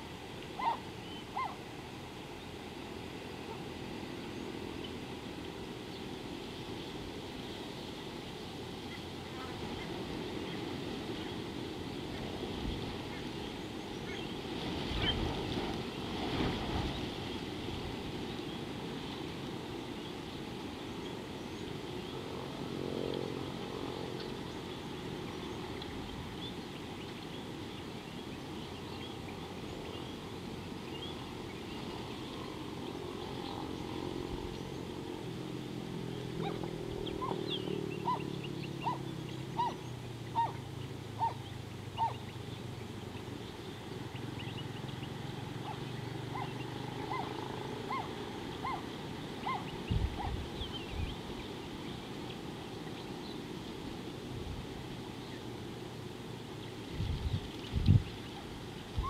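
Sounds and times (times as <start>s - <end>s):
small birds chirping: 36.1s - 53.8s.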